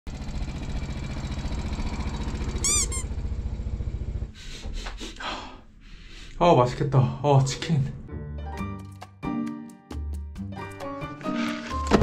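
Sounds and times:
motorcycle engine pulsing: 0:00.1 - 0:04.3
high squeaky chirps: 0:02.6 - 0:03.2.

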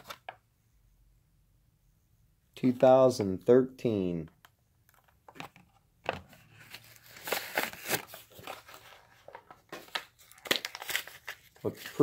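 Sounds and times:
plastic and cardboard crinkling: 0:05.0 - 0:12.0.

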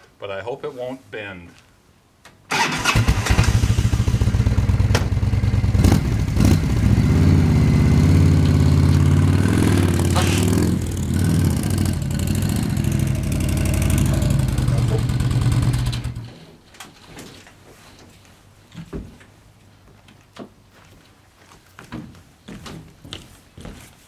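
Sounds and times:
motorcycle trike engine: 0:02.5 - 0:16.4.

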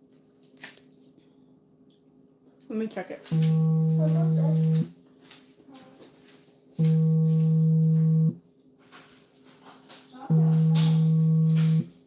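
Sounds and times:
low buzzing tone: 0:03.3 - 0:04.9, 0:06.8 - 0:08.4, 0:10.3 - 0:12.0.

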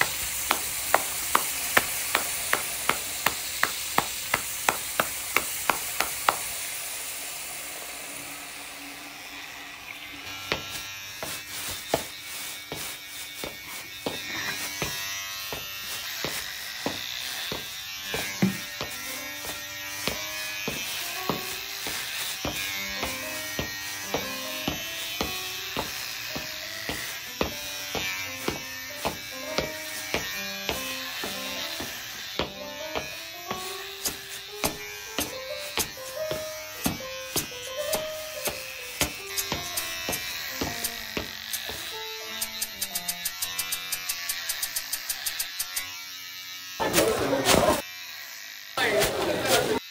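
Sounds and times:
hair clippers buzzing: 0:00.0 - 0:49.9
sharp rhythmic clicks: 0:36.8 - 0:45.8.

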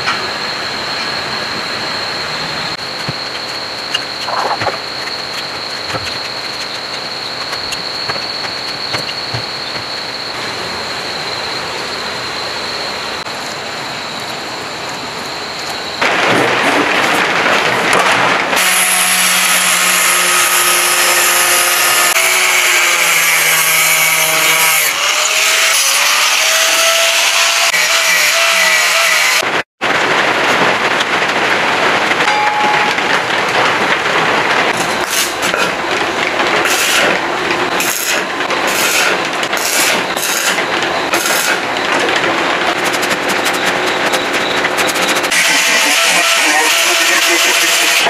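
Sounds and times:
sharp knocks: 0:05.8 - 0:10.0
angle grinder cutting steel: 0:37.8 - 0:41.6, 0:42.8 - 0:48.0.

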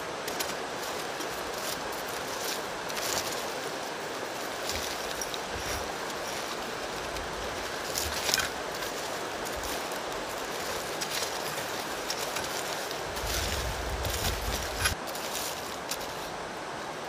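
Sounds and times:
steady outdoor hiss: 0:00.0 - 0:17.0
stick scraping through charcoal: 0:04.5 - 0:16.3.

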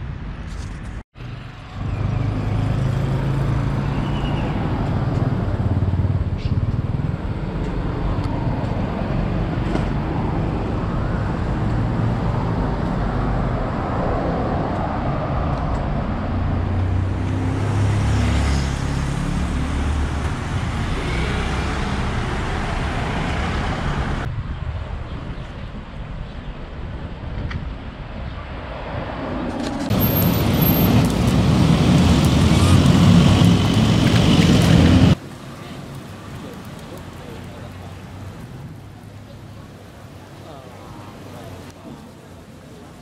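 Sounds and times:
cars and motorbikes passing: 0:01.2 - 0:43.0.

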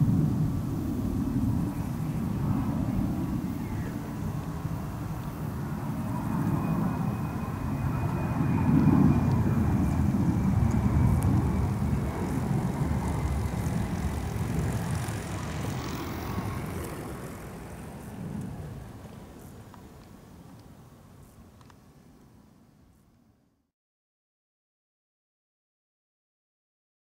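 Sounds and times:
jet engine rumbling in flyby: 0:00.0 - 0:21.5.

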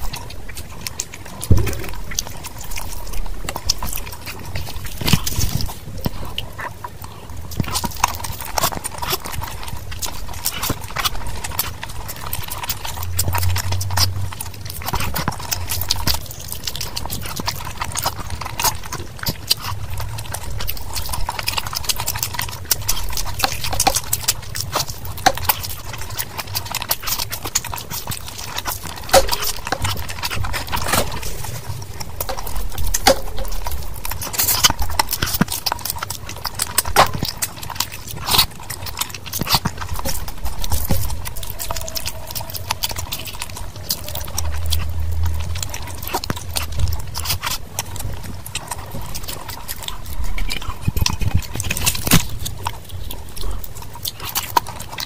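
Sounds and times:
wet chewing and lip-smacking: 0:00.0 - 0:55.0
mouth clicks: 0:01.0 - 0:03.8.

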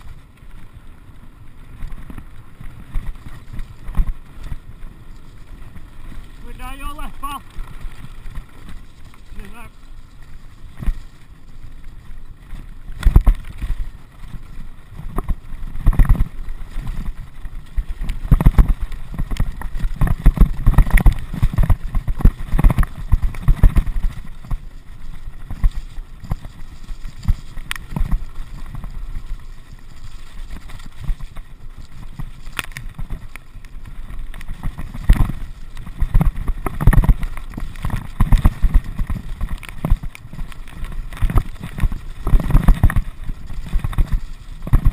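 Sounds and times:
bike knocking and rattling: 0:00.0 - 0:44.9
bike tyres rumbling over stones: 0:00.0 - 0:44.9
wind on microphone: 0:13.0 - 0:29.1, 0:29.8 - 0:44.9.

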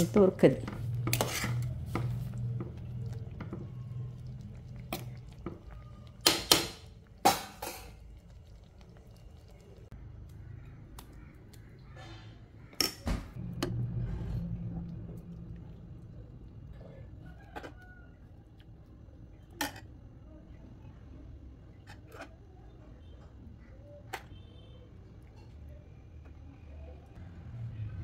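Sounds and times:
low steady hum: 0:00.0 - 0:21.9.

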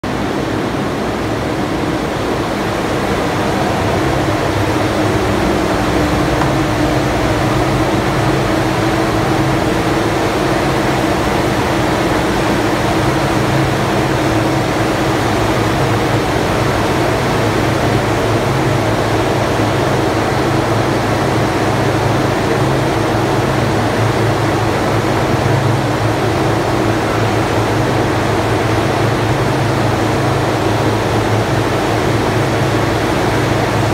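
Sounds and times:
turbine machine noise rushing: 0:00.0 - 0:33.9
low hum: 0:00.1 - 0:12.4.

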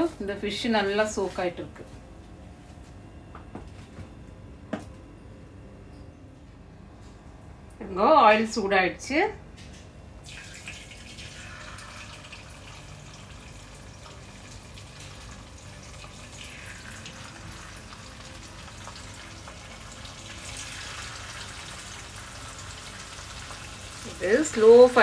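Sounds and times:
fish sizzling in hot oil: 0:10.3 - 0:25.0.

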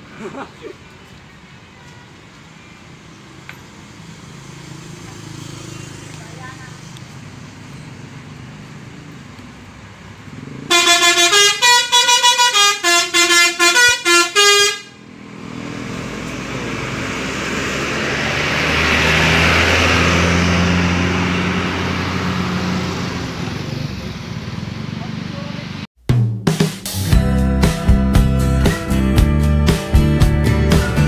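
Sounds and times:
bus engine pulling away: 0:02.2 - 0:14.4, 0:15.0 - 0:25.9
musical air horn: 0:10.7 - 0:15.0.

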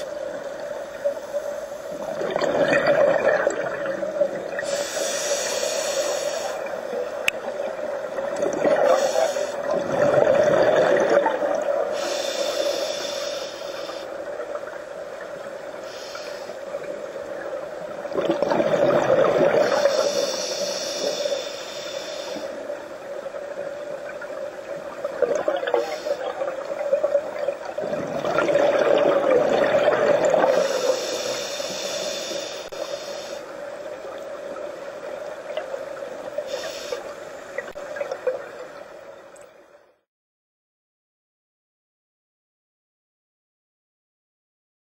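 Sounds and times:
bubbling exhalations: 0:02.1 - 0:04.0, 0:08.4 - 0:12.1, 0:18.1 - 0:20.1, 0:27.7 - 0:30.8
diver breathing through regulator: 0:04.6 - 0:06.8, 0:08.7 - 0:09.7, 0:11.9 - 0:14.1, 0:15.8 - 0:16.7, 0:19.4 - 0:22.7, 0:25.7 - 0:26.5, 0:30.3 - 0:33.6, 0:36.5 - 0:37.3.

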